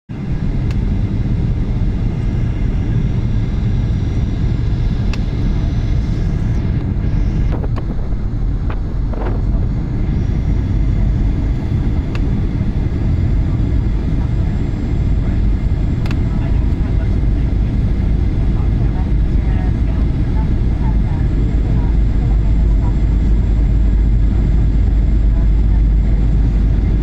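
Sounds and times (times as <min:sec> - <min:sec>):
airliner engine rumble: 0:00.1 - 0:27.0
faint steady whine: 0:00.1 - 0:27.0.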